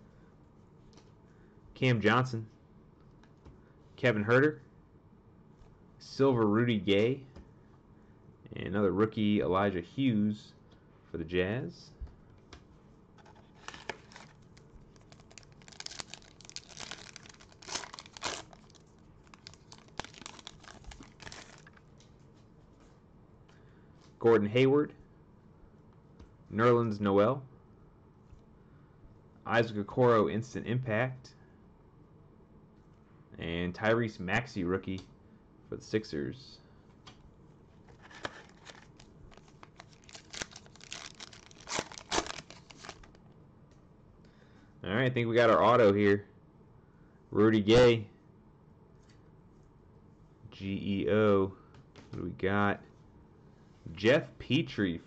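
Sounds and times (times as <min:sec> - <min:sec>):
foil pack crinkling and tearing: 0:13.2 - 0:21.8, 0:38.0 - 0:43.2
plastic wrapper crackling: 0:13.2 - 0:21.8, 0:38.0 - 0:43.2.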